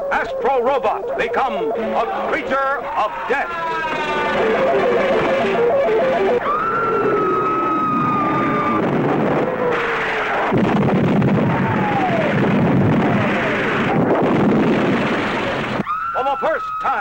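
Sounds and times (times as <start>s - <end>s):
high electronic tone: 0.0s - 7.1s
sinking low tone: 0.0s - 15.8s
falling whistles: 3.6s - 9.0s, 15.8s - 17.0s
explosions: 3.7s - 15.9s.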